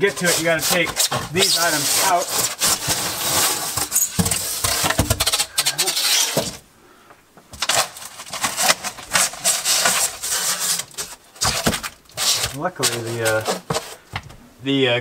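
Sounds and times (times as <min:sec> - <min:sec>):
foam panels scraping against foil: 0:00.0 - 0:06.6, 0:07.6 - 0:14.1.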